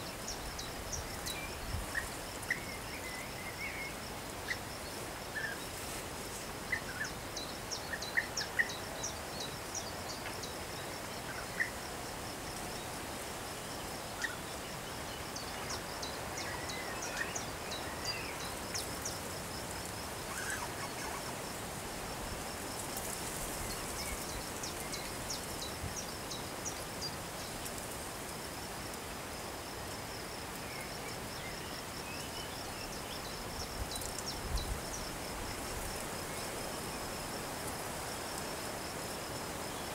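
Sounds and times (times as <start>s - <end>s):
high-pitched insect trill: 13.9s - 39.9s.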